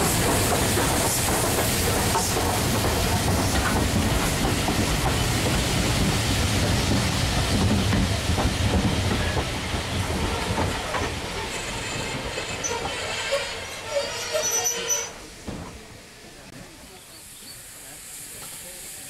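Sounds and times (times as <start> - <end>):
train coaches rumbling past: 0.0 - 19.0.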